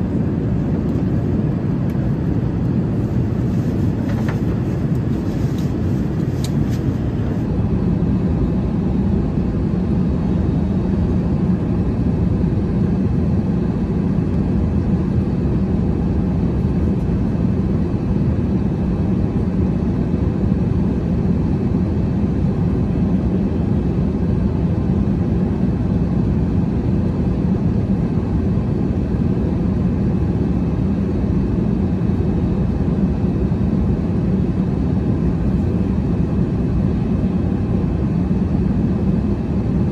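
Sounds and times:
airflow rushing: 0.0 - 7.6
airplane cabin drone: 0.0 - 39.9.

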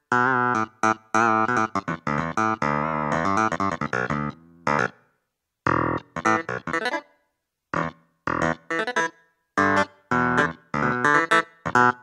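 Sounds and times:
clavinet synth chords: 7.8 - 12.0.

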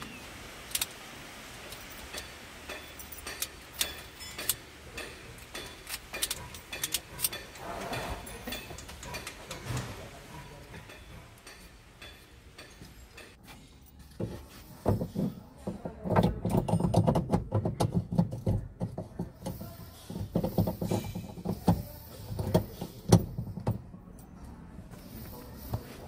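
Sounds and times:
plastic and metal parts clicking: 0.7 - 1.0, 5.4 - 7.5.

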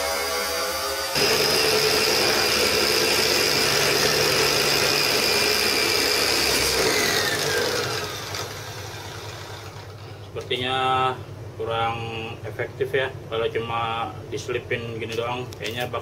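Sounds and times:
angle grinder whining: 0.0 - 10.2.

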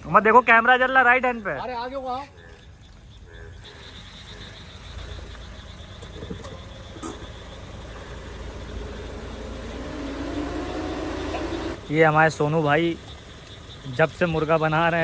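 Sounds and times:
car engine idling: 3.5 - 15.0
high-pitched trill: 8.7 - 11.9.

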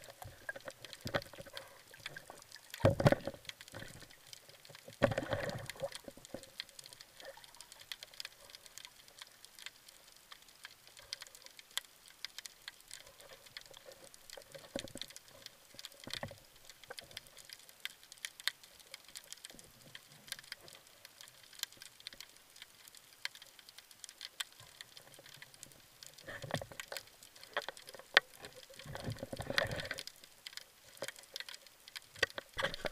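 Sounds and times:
rushes of water: 0.0 - 9.2, 24.5 - 32.9
underwater clicks and crackles: 0.0 - 32.9.

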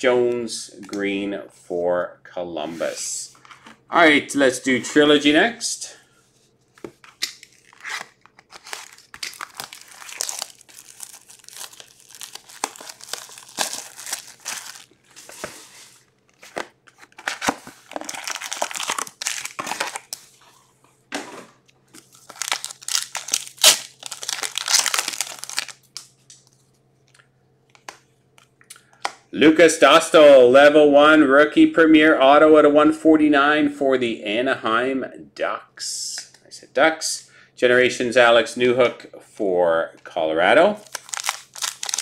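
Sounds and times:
cards shuffling: 6.8 - 20.3
cardboard and wrapping crinkling: 6.9 - 20.5, 21.9 - 26.6, 40.8 - 42.0.

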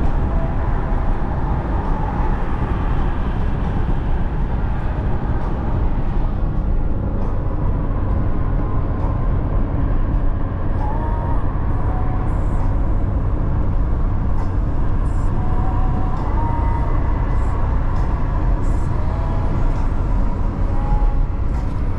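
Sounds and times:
car road and engine noise: 0.0 - 21.9.

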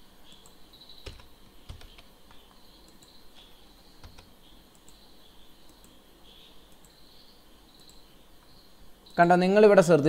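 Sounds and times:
insects chirring: 0.2 - 9.4
keyboard keystrokes: 0.3 - 3.1, 4.0 - 5.0
mouse clicks: 0.3 - 5.0, 5.6 - 7.1, 7.8 - 8.1.

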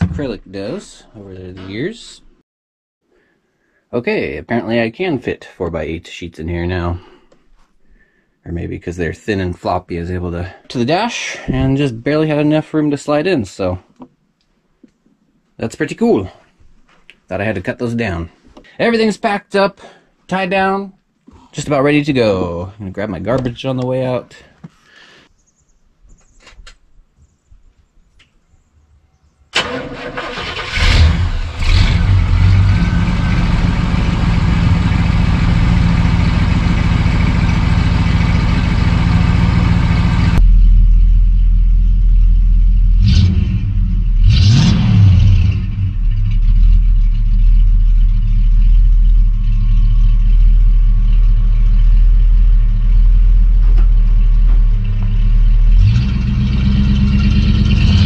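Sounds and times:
engine starting and running: 29.5 - 58.0.

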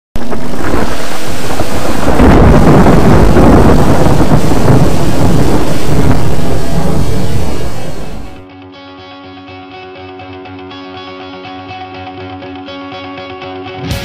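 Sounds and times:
loud continuous thunder: 0.2 - 8.4
rain: 0.2 - 8.4.

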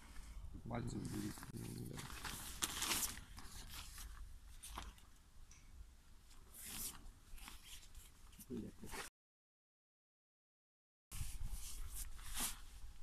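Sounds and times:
plastic rain cape rustling: 1.1 - 5.0.

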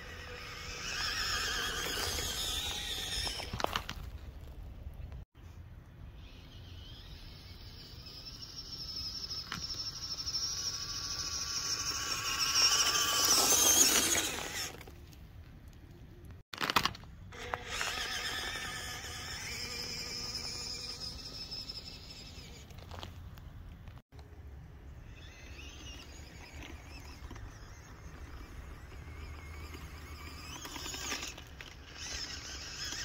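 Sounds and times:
electric motor whining: 0.0 - 3.8, 6.2 - 14.8, 17.3 - 22.7, 25.1 - 33.0.

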